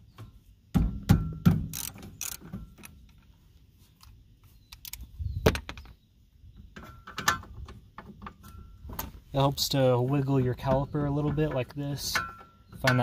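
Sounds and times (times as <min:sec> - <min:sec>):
hand tool clicks: 0:01.7 - 0:03.0.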